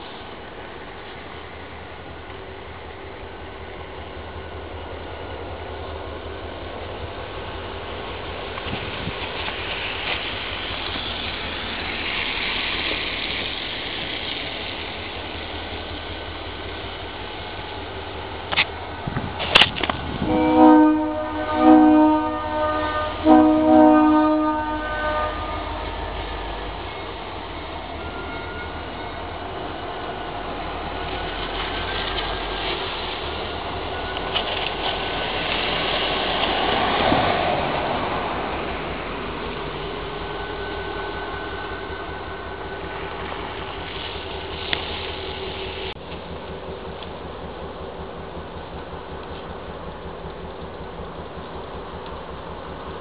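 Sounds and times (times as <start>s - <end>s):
locomotive engine rolling past: 0.0s - 53.0s
wheels on rails: 0.0s - 53.0s
locomotive air horn: 20.2s - 27.0s, 28.0s - 29.3s.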